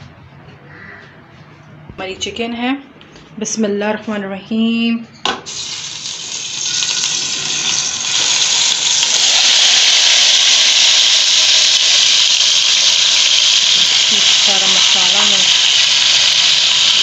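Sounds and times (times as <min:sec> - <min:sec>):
chicken sizzling in hot oil: 0:05.5 - 0:17.0.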